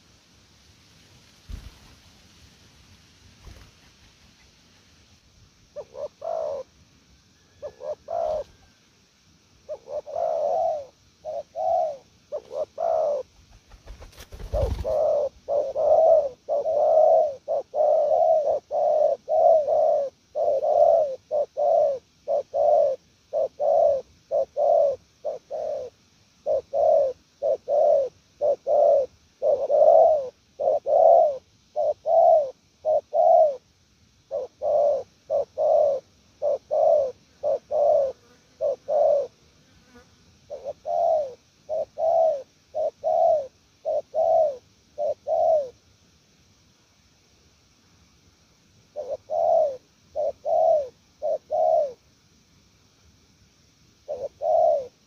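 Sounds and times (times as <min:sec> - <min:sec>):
dove cooing: 0:05.7 - 0:06.7, 0:07.4 - 0:08.8, 0:09.6 - 0:33.6, 0:34.2 - 0:45.8, 0:48.9 - 0:52.0, 0:54.0 - 0:55.0.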